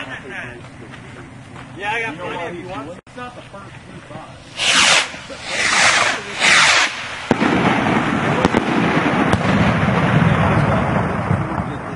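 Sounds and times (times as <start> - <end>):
fireworks hissing whooshes: 4.3 - 11.7
firework bang: 4.4 - 11.9
sharp pops: 4.5 - 9.7.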